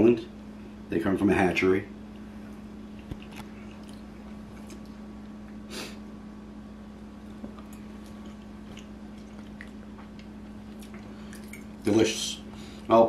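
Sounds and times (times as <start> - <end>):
steady low hum: 0.0 - 13.0
chewing: 2.9 - 5.6, 7.2 - 11.8.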